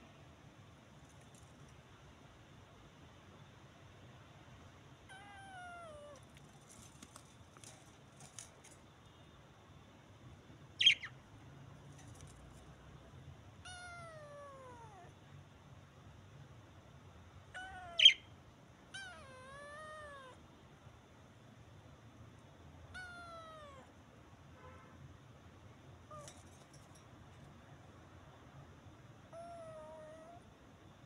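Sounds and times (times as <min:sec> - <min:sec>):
kitten meowing: 0:05.1 - 0:06.2, 0:13.6 - 0:15.1, 0:17.5 - 0:18.2, 0:18.9 - 0:20.4, 0:22.9 - 0:23.9, 0:29.3 - 0:30.4
budgerigar chirps: 0:10.8 - 0:11.2, 0:17.7 - 0:18.3.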